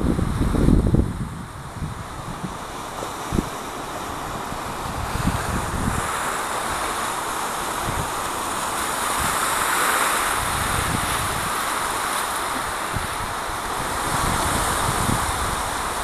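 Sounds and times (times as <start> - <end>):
surf on the shore: 0.0 - 16.0
wind rumbling on microphone: 0.0 - 16.0.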